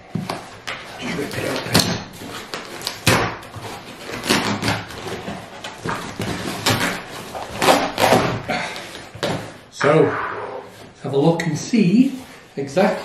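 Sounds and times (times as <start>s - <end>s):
cardboard and tape ripping: 1.1s - 8.4s.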